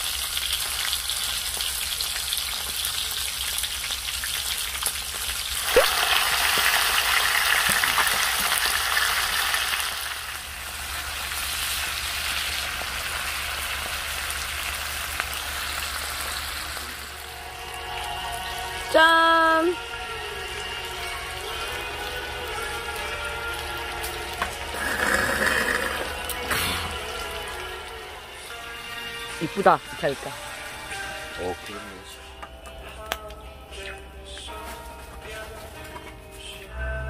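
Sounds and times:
pork sizzling on a griddle pan: 0:00.0 - 0:29.4.

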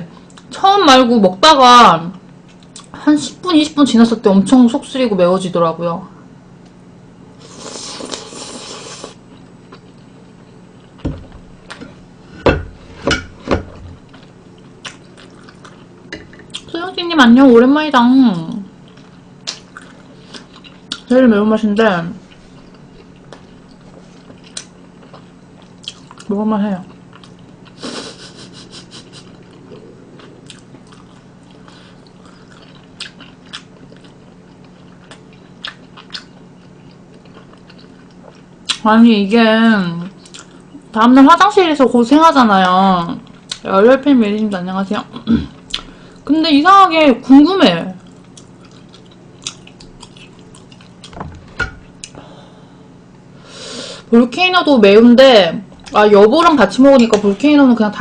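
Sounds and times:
faint steady hum: 0:00.0 - 0:58.0
person chewing food: 0:07.4 - 0:11.0, 0:14.0 - 0:16.7, 0:18.8 - 0:21.1, 0:22.3 - 0:26.3, 0:26.9 - 0:38.8, 0:48.0 - 0:51.2.

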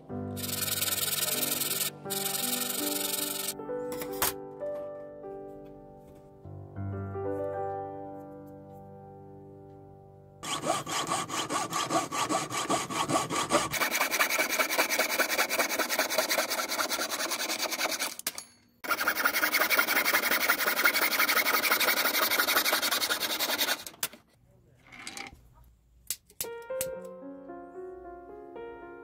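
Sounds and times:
saw cutting metal tube: 0:00.4 - 0:03.6, 0:10.4 - 0:24.1.

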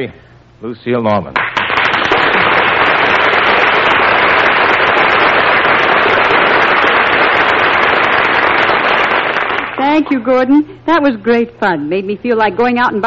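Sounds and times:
audience applauding: 0:01.4 - 0:10.1.

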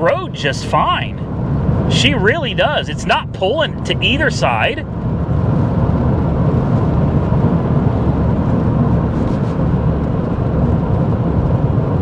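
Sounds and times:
car engine drone: 0:00.0 - 0:12.0.

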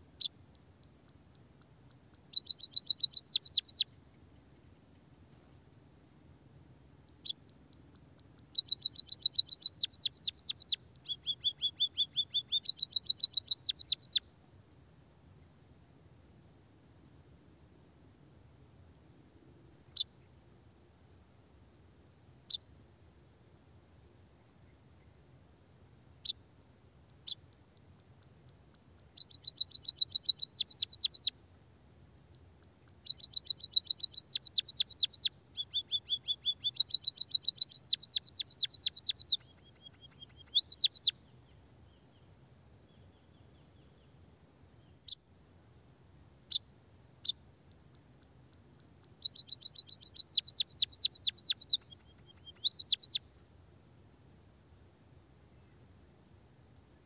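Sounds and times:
bird chirps: 0:02.1 - 0:03.9, 0:07.1 - 0:14.3, 0:27.1 - 0:28.3, 0:29.0 - 0:31.4, 0:32.6 - 0:44.2, 0:46.5 - 0:53.4.

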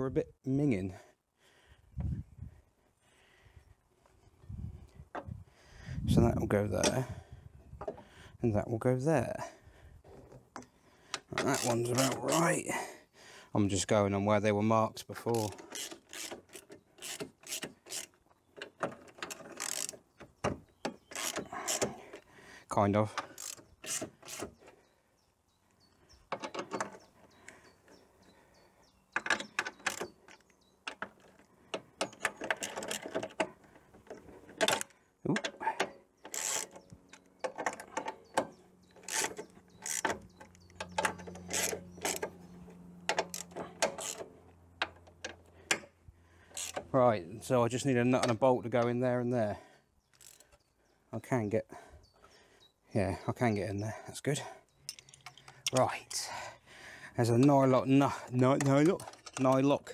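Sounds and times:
ratchet wrench clicking: 0:15.4 - 0:18.1, 0:19.2 - 0:20.0, 0:36.3 - 0:36.7, 0:43.2 - 0:44.2.

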